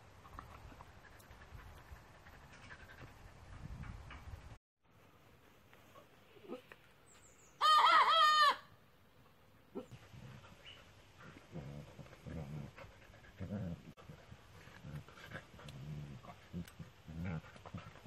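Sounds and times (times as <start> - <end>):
chicken call: 7.6 - 8.7
dogs play-wrestling: 9.9 - 18.0.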